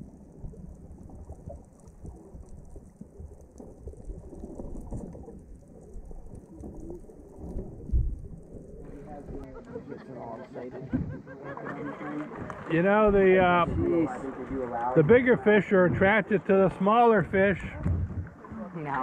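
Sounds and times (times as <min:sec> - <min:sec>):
fine crackling underwater: 0:00.0 - 0:19.0
muffled underwater rumble: 0:00.0 - 0:19.0
low thump: 0:10.9 - 0:11.2, 0:17.8 - 0:18.4.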